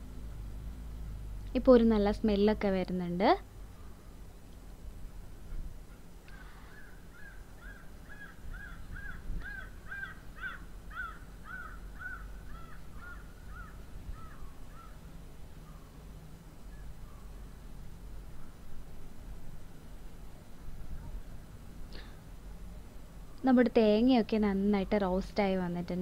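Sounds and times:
crow cawing: 6.3 - 15.0.

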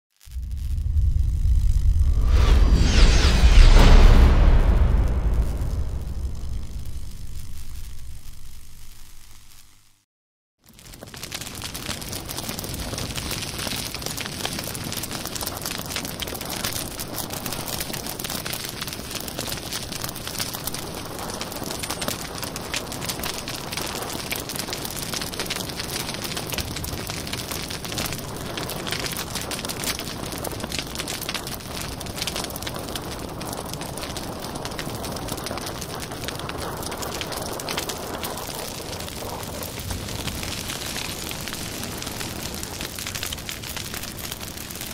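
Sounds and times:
logs crackling and popping: 0.2 - 2.3, 5.1 - 9.9, 10.6 - 44.9
hiss of flames: 0.2 - 9.9, 14.6 - 44.9.

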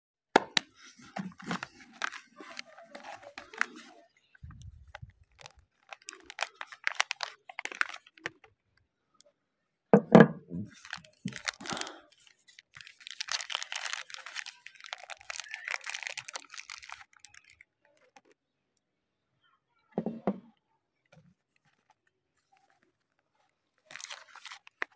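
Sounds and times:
wrappers crinkling and tearing: 0.6 - 4.0, 4.6 - 8.5, 10.7 - 18.4, 21.6 - 24.9.

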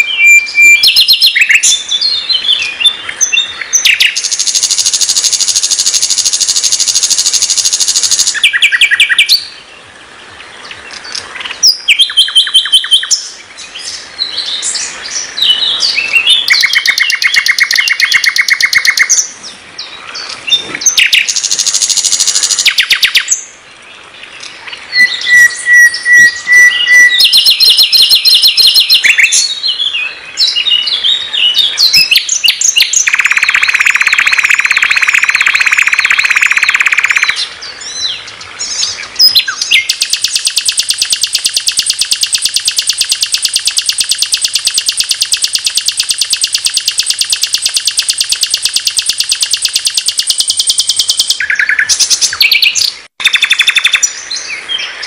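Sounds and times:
nightingale singing: 0.0 - 55.0.

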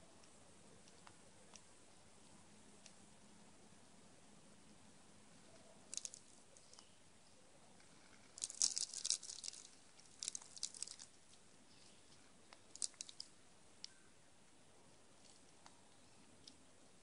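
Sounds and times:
squirrel crunching seeds: 5.4 - 7.0, 7.8 - 14.0.

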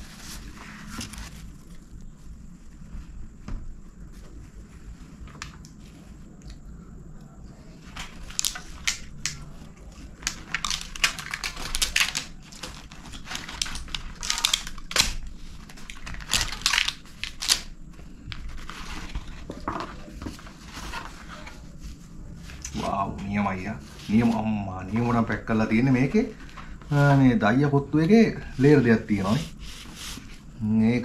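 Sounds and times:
paper lining rustling: 0.0 - 3.2, 9.8 - 30.6
paper packaging crinkling and tearing: 7.8 - 21.8.

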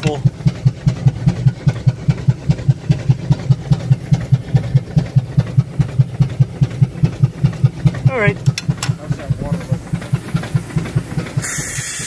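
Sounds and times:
steam engine running rhythmically: 0.0 - 12.0.

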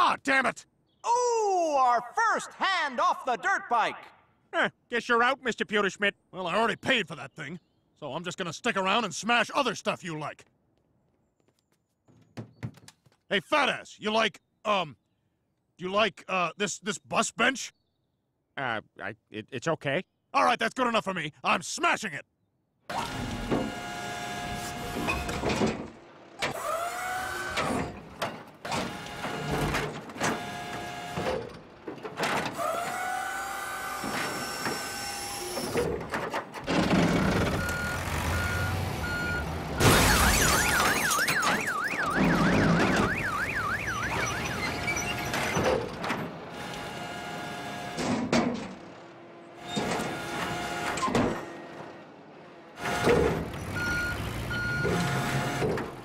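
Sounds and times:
alarm wailing: 37.4 - 45.8
cartoon crashes: 39.8 - 43.3
cartoon machine sounds: 39.8 - 45.8.

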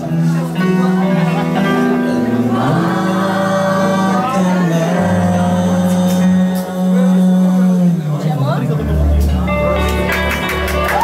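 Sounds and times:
rock band playing: 0.0 - 11.0.

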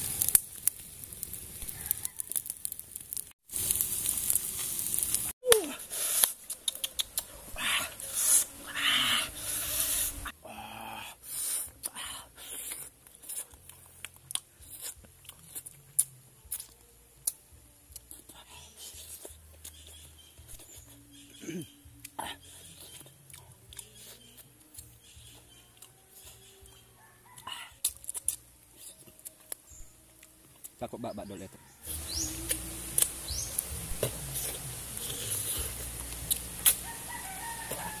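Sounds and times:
rooster crowing: 1.6 - 2.4, 27.0 - 27.8, 31.4 - 32.5, 36.8 - 38.0
sharp clicks: 6.2 - 7.3
chewing with mouth smacks: 6.2 - 7.6, 27.4 - 29.6
birds chirping: 30.8 - 33.8.

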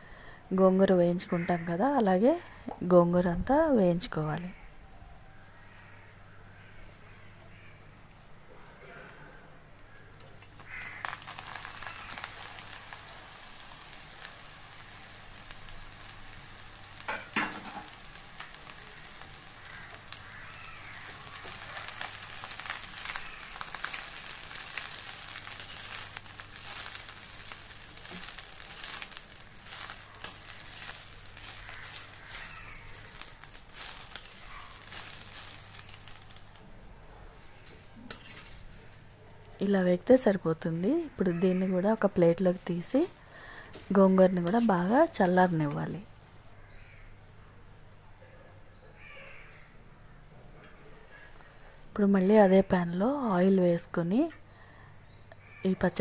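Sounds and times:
leaves sizzling in oil: 0.0 - 4.4, 9.4 - 47.1, 51.1 - 54.4, 55.1 - 56.0
spatula scraping and tapping pan: 16.9 - 36.5, 37.6 - 38.6.

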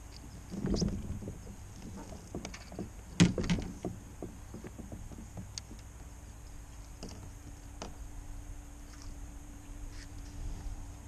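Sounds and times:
fishing gear clicks and knocks: 0.0 - 6.1.

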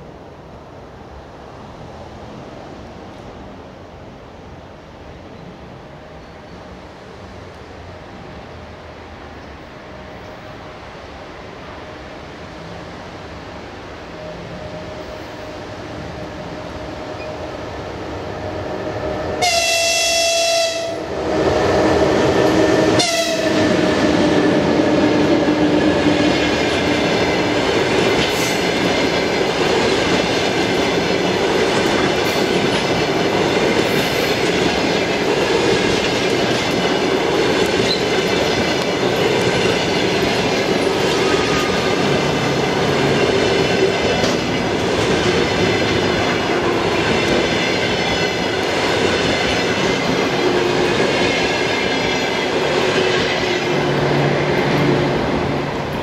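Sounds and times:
train passing at speed: 0.0 - 56.0
train horn blasts: 19.4 - 21.2, 22.8 - 24.0, 41.2 - 42.1
wheels clicking over rail joints: 25.3 - 56.0.

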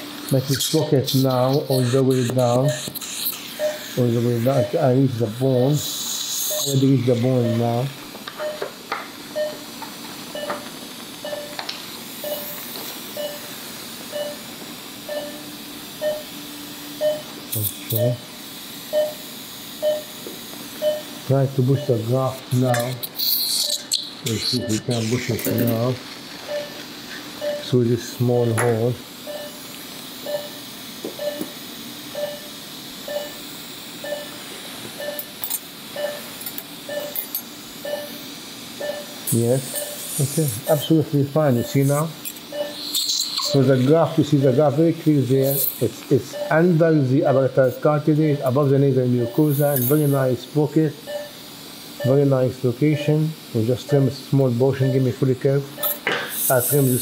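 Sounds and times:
steady hiss and hum: 0.0 - 57.0
monitor pulse beeps: 2.5 - 2.9, 3.6 - 5.7, 6.4 - 8.7, 9.4 - 11.6, 12.2 - 18.2, 18.9 - 23.0, 23.6 - 25.8, 26.4 - 27.7, 29.2 - 47.4, 49.1 - 50.2, 51.0 - 52.3, 53.8 - 57.0.

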